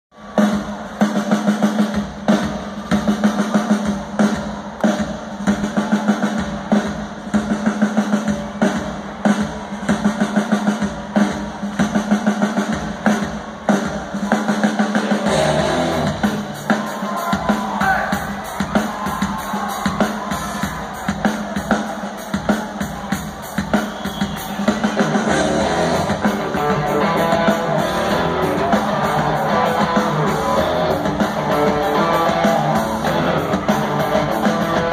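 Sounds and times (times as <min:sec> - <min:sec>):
drum kit groove: 0:00.2 - 0:34.9
live rock band: 0:00.2 - 0:34.9
bass: 0:15.3 - 0:16.5, 0:24.9 - 0:34.9.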